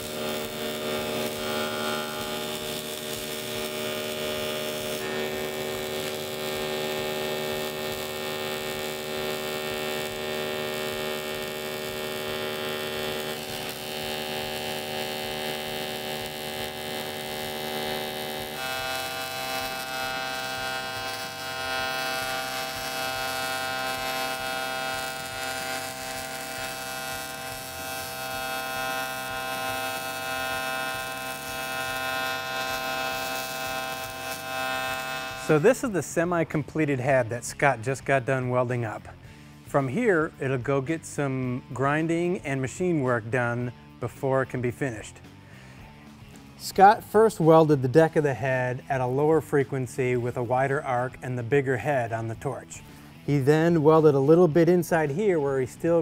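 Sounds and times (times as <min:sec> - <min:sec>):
welding arc buzzing: 0:00.0 - 0:43.0, 0:51.6 - 0:56.0.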